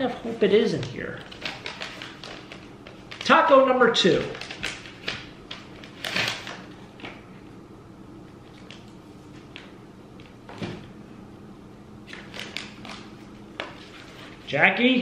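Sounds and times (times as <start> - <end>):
paper and card crinkling: 0.7 - 7.2, 12.1 - 14.5.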